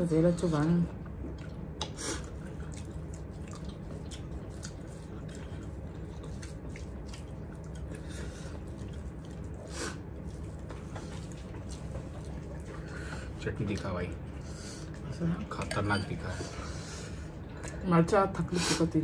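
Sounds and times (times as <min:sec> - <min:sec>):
chewing: 0:01.0 - 0:15.2
rice squishing by hand: 0:01.6 - 0:14.4.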